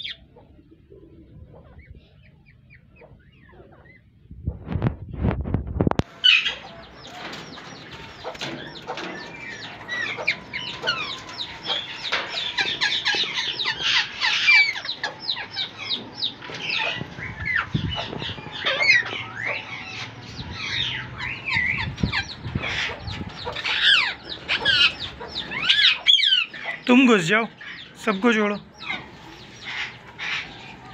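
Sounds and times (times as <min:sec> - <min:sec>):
parrots screeching and chattering: 0:06.1 - 0:26.9, 0:27.5 - 0:28.0, 0:28.6 - 0:30.9
low rumble with knocks: 0:15.2 - 0:25.7.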